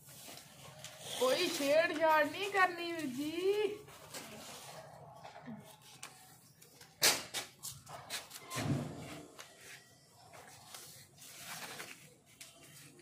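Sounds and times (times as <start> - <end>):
paper rustling and crackling: 0.0 - 13.0.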